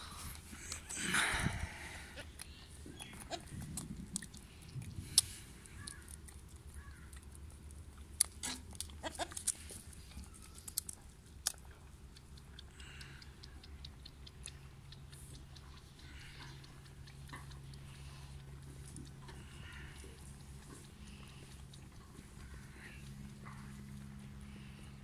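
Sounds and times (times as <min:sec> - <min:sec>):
goat kids suckling: 0:00.0 - 0:25.0.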